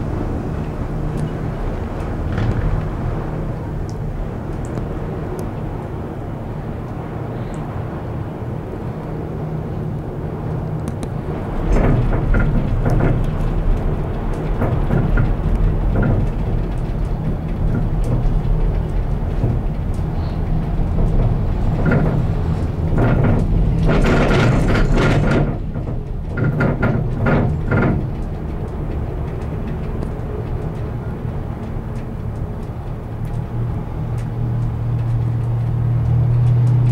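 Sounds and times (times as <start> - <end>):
rattling clatter: 0.0 - 4.8, 11.1 - 33.5
gondola cabin rumbling: 0.0 - 36.9
clicks and knocks: 10.8 - 32.7.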